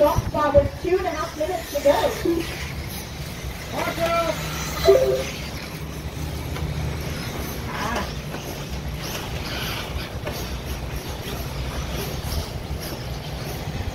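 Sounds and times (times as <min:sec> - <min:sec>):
rc cars passing: 0:00.0 - 0:13.9
short rising whine: 0:04.8 - 0:05.5.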